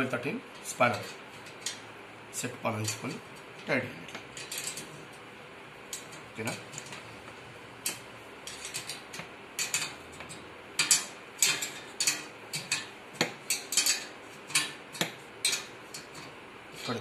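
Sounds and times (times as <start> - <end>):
spanner clicking on metal: 2.8 - 5.0, 7.8 - 17.0.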